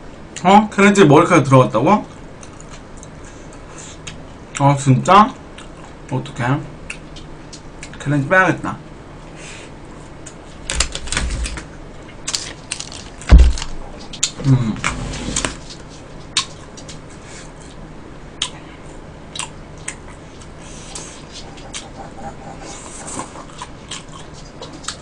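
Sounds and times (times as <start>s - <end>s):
chewing: 19.3s - 25.0s.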